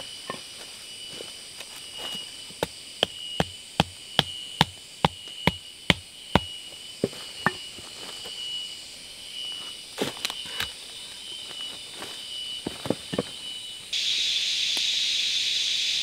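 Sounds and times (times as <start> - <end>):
wooden baton knocking a stake: 2.6 - 6.5.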